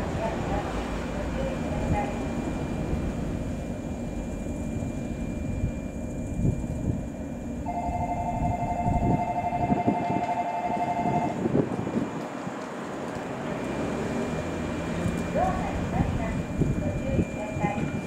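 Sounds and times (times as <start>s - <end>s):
train rumbling into station: 0.0s - 18.0s
two-note tone: 7.6s - 11.4s.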